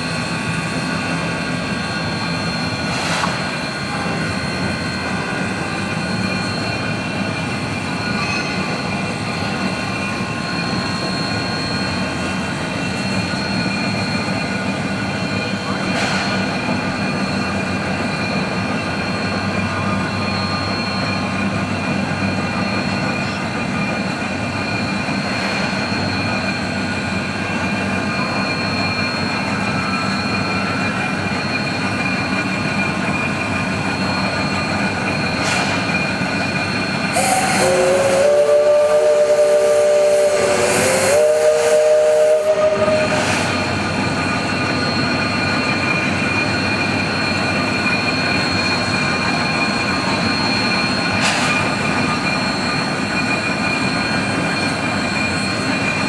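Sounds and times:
locomotive hissing and running: 0.0 - 56.0
steam locomotive whistle: 37.0 - 44.1.

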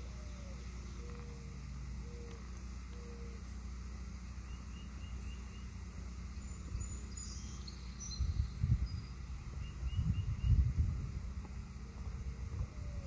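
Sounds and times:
steady low rumble: 0.0 - 13.0
wind buffeting microphone: 8.1 - 13.0.

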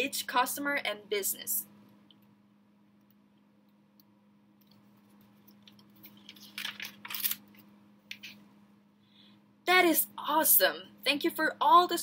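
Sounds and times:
faint steady hum: 0.0 - 12.0
paper pages turning: 4.7 - 8.4.

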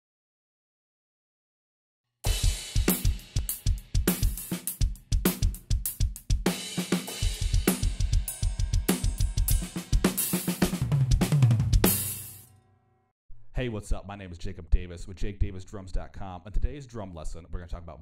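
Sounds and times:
drum kit groove: 2.3 - 12.5
cymbal crash: 6.5 - 12.5.

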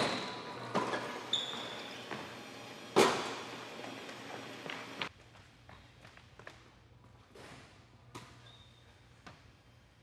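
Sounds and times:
sneaker squeak: 0.0 - 2.3, 7.4 - 9.4.

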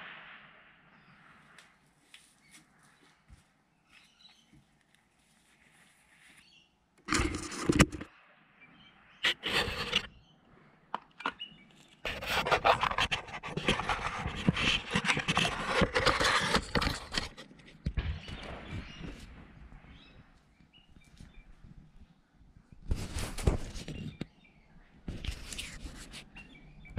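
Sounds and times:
camera handling scraping: 6.4 - 8.1, 9.2 - 10.1, 12.1 - 18.3
rubbing and knocking on camera: 7.1 - 8.1, 9.2 - 10.1, 12.1 - 19.4, 22.8 - 24.3, 25.1 - 26.5.

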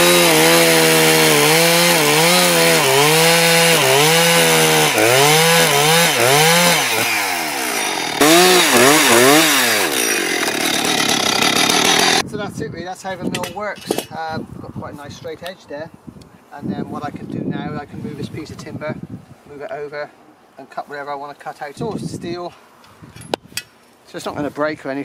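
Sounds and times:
chainsaw cutting log: 0.0 - 12.2.

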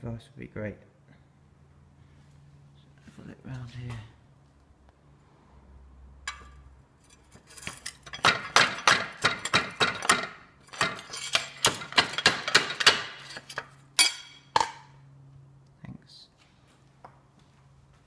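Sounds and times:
metallic clinking and knocking: 6.3 - 14.8.

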